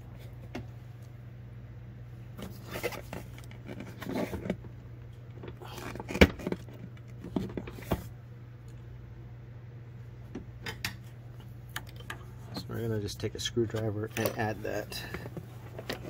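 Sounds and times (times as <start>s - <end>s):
plastic rustling and creaking: 2.4s - 8.1s, 13.7s - 16.0s.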